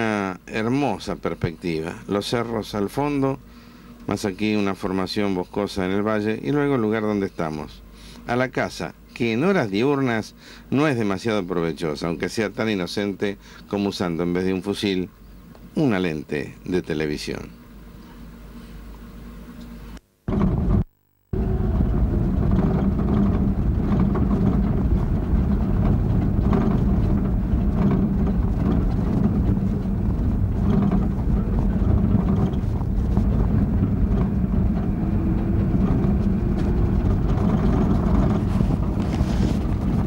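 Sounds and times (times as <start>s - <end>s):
truck engine and road noise: 20.3s - 40.0s.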